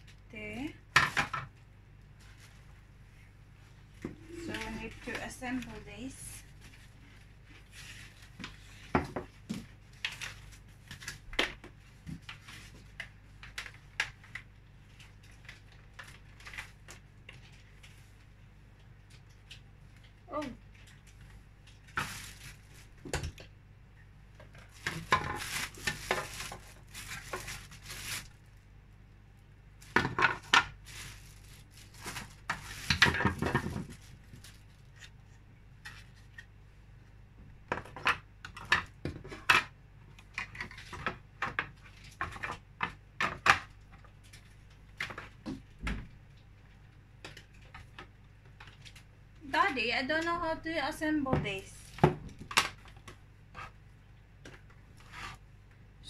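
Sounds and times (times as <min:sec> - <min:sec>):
plastic fan parts knocking and clattering: 0:00.9 - 0:01.6, 0:24.4 - 0:27.6, 0:29.8 - 0:30.8, 0:32.0 - 0:34.5, 0:37.6 - 0:46.2.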